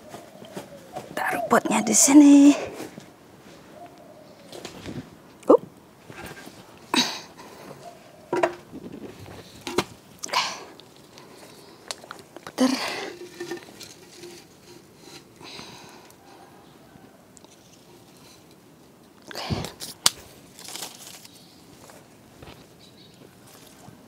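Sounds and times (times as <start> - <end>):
short rustles: 4.5 - 5.4, 6.0 - 6.8.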